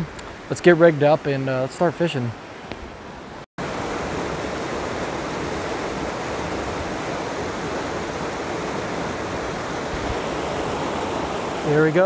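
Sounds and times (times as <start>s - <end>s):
stream rushing over rocks: 3.6s - 12.0s.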